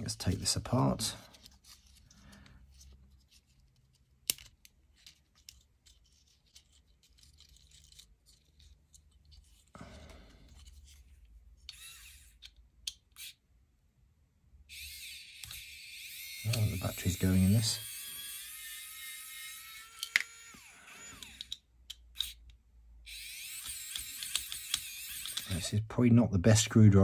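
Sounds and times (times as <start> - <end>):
plastic parts clicking and rustling: 1.2 - 9.7, 19.8 - 20.4
electric screwdriver whirring: 11.7 - 12.5, 14.7 - 21.6, 23.1 - 25.7.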